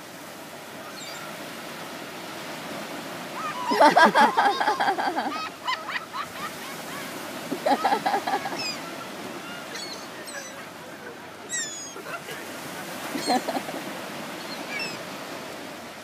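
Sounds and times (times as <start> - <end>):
surf washing: 0.0 - 16.0
gulls calling: 3.3 - 15.2.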